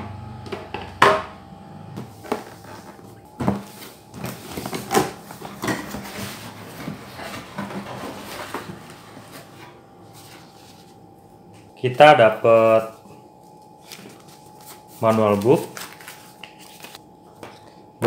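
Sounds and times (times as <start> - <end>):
cardboard and paper rustling: 2.1 - 11.0, 13.8 - 17.6.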